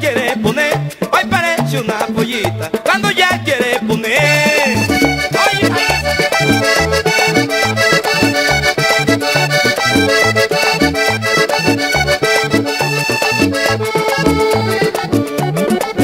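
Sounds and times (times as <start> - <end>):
accordion melody: 0.0 - 16.0
steady percussion: 0.0 - 16.0
pulsing bass line: 3.4 - 16.0.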